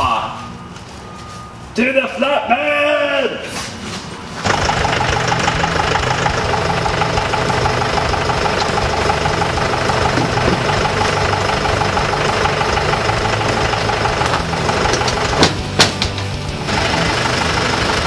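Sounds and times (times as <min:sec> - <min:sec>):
diesel tractor engine idling: 0:04.4 - 0:18.0.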